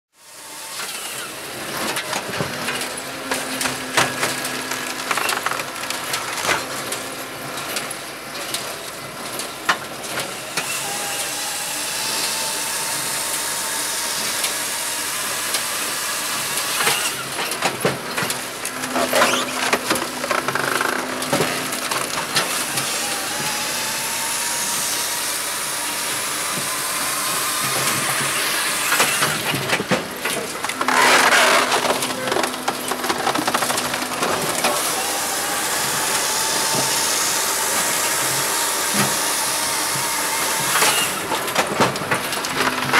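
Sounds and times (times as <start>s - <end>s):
machinery running with knocks: 0.8s - 42.9s
wood cracking and splintering: 3.6s - 7.0s, 29.0s - 37.0s
circular saw cutting log: 10.5s - 17.6s, 18.5s - 29.9s, 30.6s - 41.6s.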